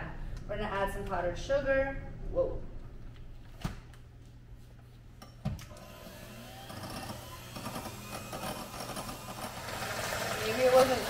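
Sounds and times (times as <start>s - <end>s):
electric mixer whipping cream: 5.7s - 11.0s.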